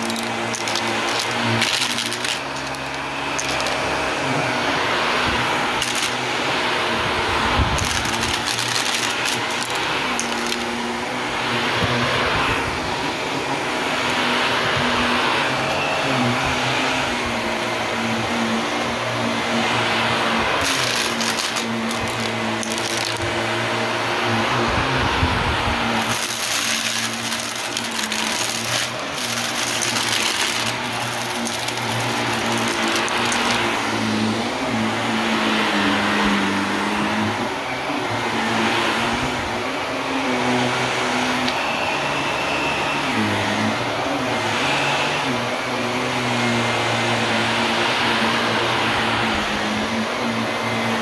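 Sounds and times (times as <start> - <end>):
sharp clicks and rattles: 0.0 - 3.9, 5.8 - 6.2, 7.7 - 10.8, 20.6 - 23.3, 26.0 - 33.7
vacuum cleaner running on rug: 0.0 - 51.0.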